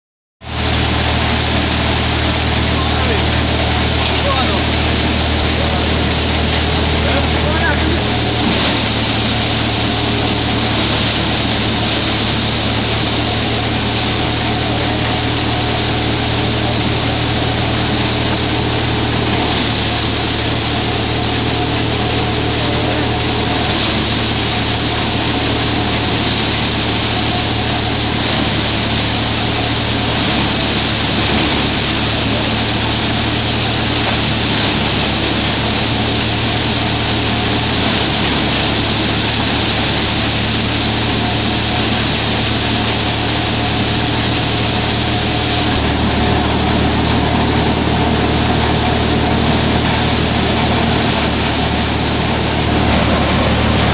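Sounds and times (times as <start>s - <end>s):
threshing drum and fan rushing: 0.4s - 28.7s, 45.6s - 53.9s
low engine drone: 0.4s - 53.9s.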